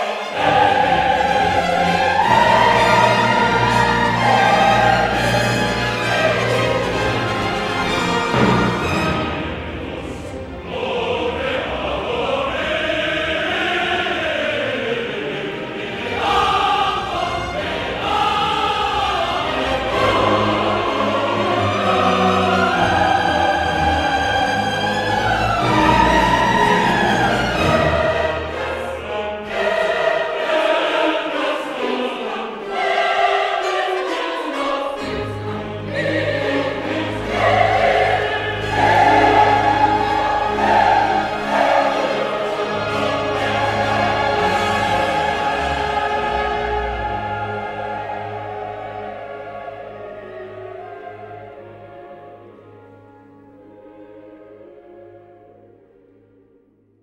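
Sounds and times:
choir holding long notes: 0.0 - 57.0.

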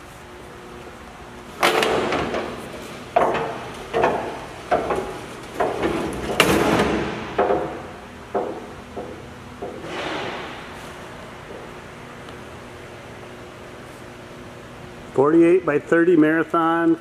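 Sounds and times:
metal door clanking and banging: 1.6 - 10.8.

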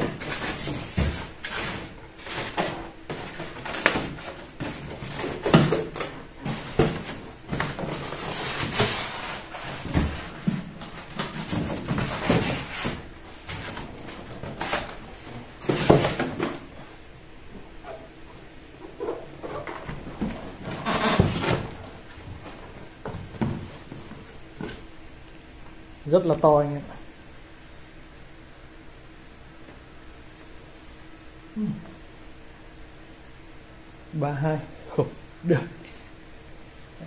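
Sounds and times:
polystyrene scraping in cardboard box: 7.8 - 10.4.

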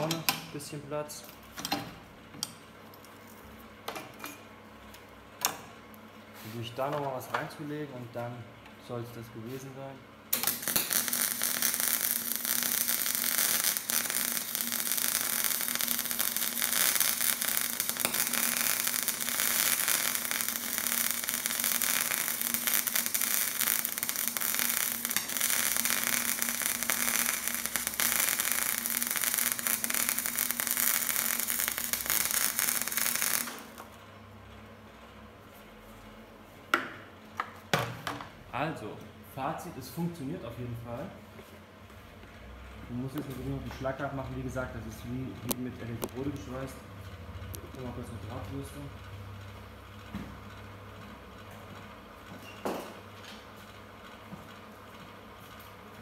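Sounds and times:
welding arc crackling: 0.0 - 0.6, 10.3 - 34.0.

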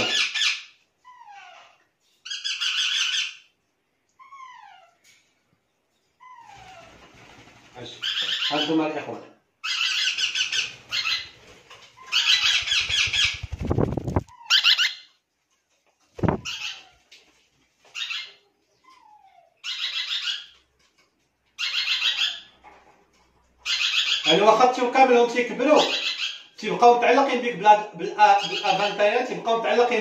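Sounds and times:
parrot chicks squawking: 0.0 - 3.6, 8.0 - 9.0, 9.6 - 15.2, 16.2 - 17.0, 17.9 - 20.7, 21.6 - 22.9, 23.6 - 24.6, 25.6 - 26.6, 28.3 - 29.0.

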